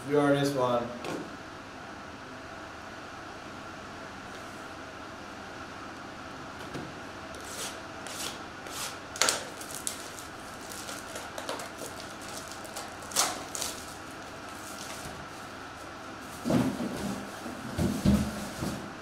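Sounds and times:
steady background hum: 0.0s - 19.0s
shrink wrap crinkling and ripping: 9.1s - 15.6s.

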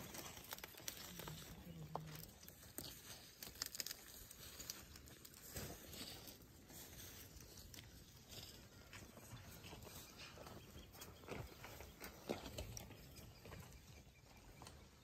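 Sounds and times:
twigs snapping: 0.0s - 6.4s
elephants rustling through brush: 0.0s - 12.6s.

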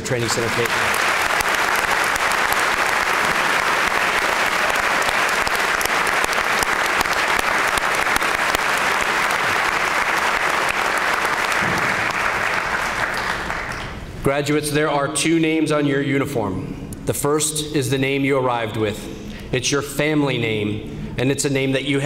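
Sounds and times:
large audience applauding: 0.0s - 14.1s.

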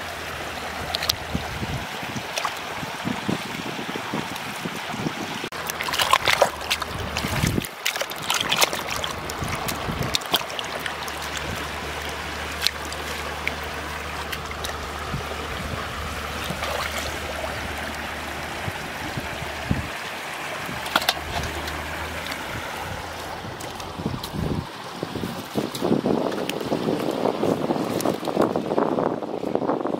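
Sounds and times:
shallow river water rushing: 0.0s - 29.9s
hands squelching in wet mud: 5.5s - 19.9s, 20.7s - 24.6s.

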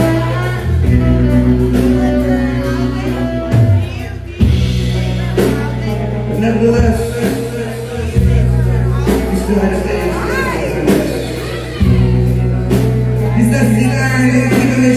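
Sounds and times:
saxophone: 0.0s - 6.4s
bass: 0.0s - 14.9s
drum kit: 0.0s - 14.9s.

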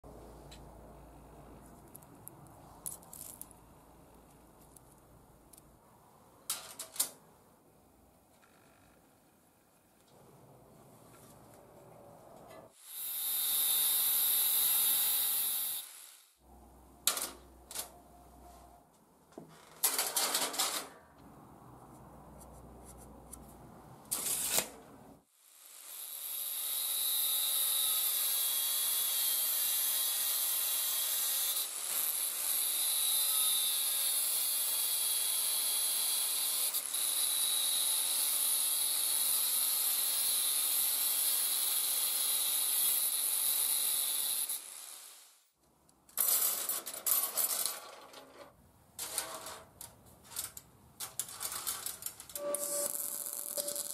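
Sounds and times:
angle grinder cutting sheet steel: 12.7s - 16.3s, 25.6s - 45.3s, 51.5s - 53.9s
steel strips clattering on table: 49.0s - 53.9s.

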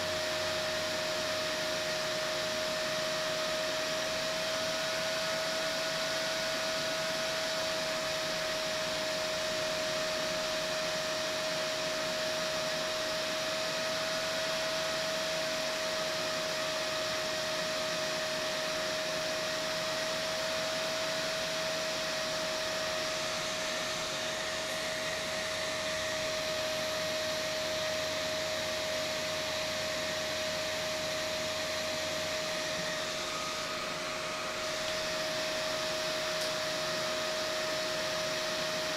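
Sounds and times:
cooling fan whining: 0.0s - 38.9s.

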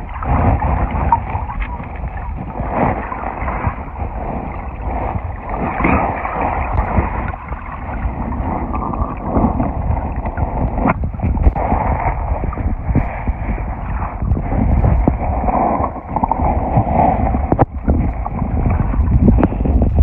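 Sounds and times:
muffled underwater river rushing: 0.0s - 20.0s.

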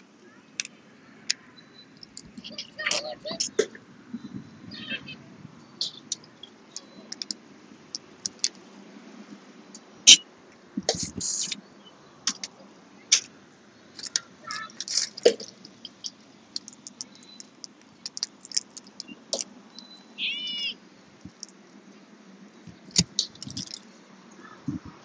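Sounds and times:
high-pitched bird call: 4.2s - 7.3s, 19.8s - 20.8s
shells cracking and snapping: 5.8s - 8.6s, 14.8s - 19.5s, 22.7s - 23.8s.

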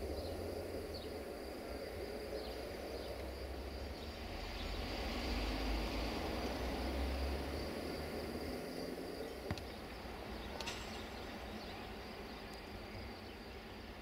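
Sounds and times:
even hiss: 0.0s - 14.0s
insect chirring: 0.0s - 14.0s
faint clicks: 12.4s - 12.7s.

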